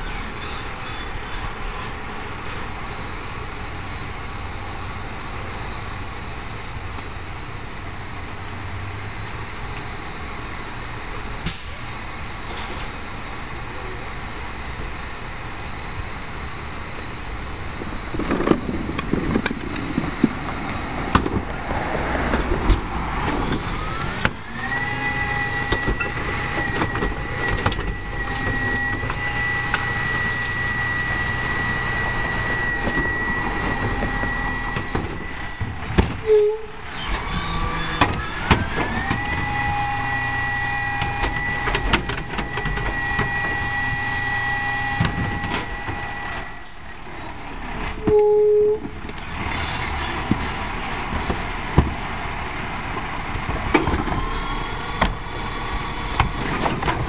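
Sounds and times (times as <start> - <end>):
hydraulic whine: 22.4 - 52.2.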